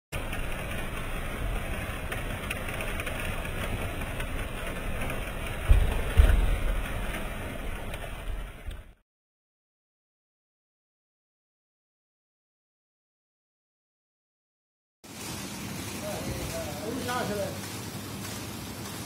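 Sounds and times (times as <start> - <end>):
conveyor humming and clattering: 0.2 - 9.0
low thumps: 5.2 - 7.2.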